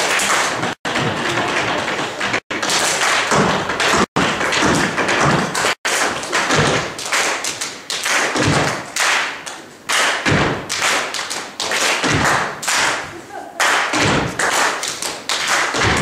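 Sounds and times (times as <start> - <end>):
dance taps on wooden stage: 0.2 - 7.0, 8.3 - 8.9, 10.2 - 13.0, 13.8 - 16.0.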